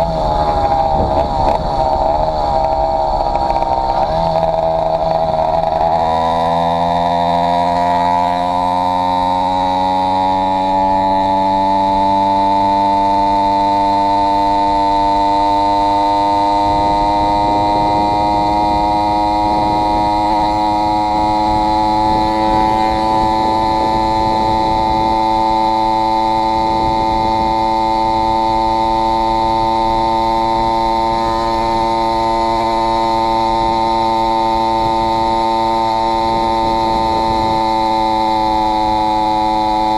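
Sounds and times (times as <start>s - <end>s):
two-stroke engine at high revs: 0.0s - 39.9s.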